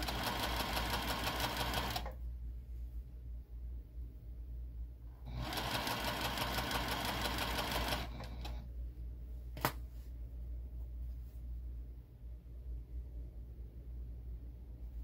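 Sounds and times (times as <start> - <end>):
sewing machine stitching: 0.0 - 2.2, 5.3 - 8.6.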